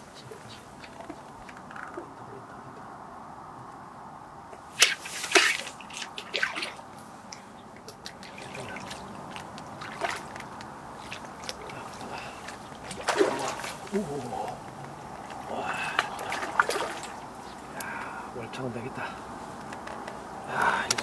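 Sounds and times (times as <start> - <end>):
fish splashing in water: 4.7 - 6.9, 7.8 - 18.0
fishing rod snap: 4.8 - 6.3.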